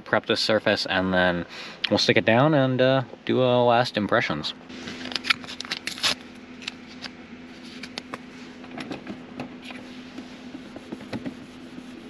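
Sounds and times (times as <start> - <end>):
faint steady hum: 0.0 - 12.0
paper packet crinkling: 4.8 - 7.1
wipe rubbing on plastic: 9.7 - 12.0.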